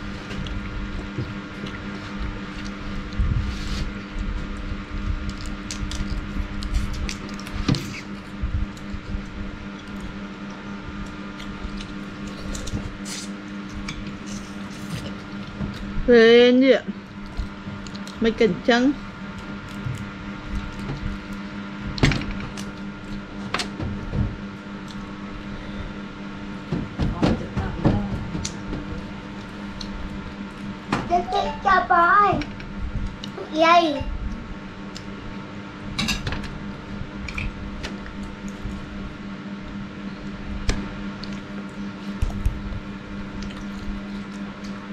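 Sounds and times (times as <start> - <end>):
steady low hum: 0.0 - 44.9
chewing: 17.2 - 18.2, 24.8 - 25.1, 41.2 - 44.8
person speaking: 31.1 - 32.4.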